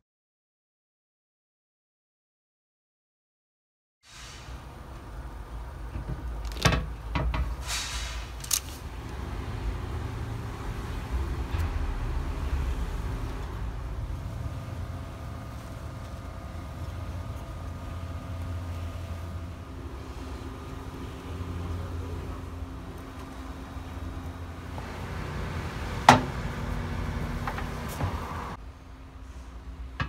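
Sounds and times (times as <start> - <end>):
steady low hum: 8.2 - 30.0.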